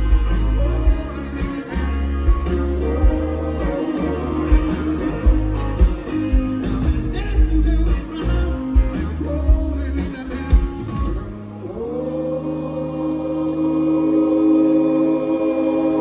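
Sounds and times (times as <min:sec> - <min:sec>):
rock band playing: 0:00.0 - 0:11.7
man singing: 0:00.0 - 0:16.0.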